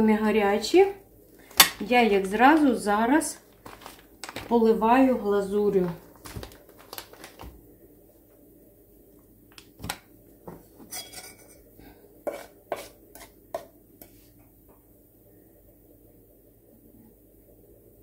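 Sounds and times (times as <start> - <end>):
kitchenware clinking and knocking: 10.8 - 11.6.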